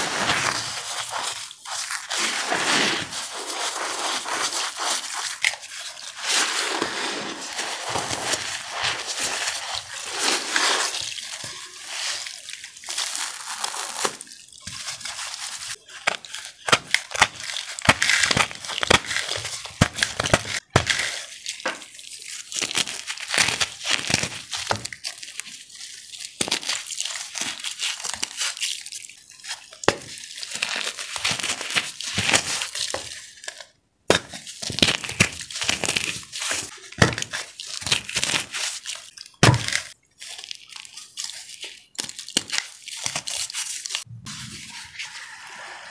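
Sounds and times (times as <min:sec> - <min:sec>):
wet cornstarch crackling when squeezed: 0:00.0 - 0:33.7, 0:34.5 - 0:44.1.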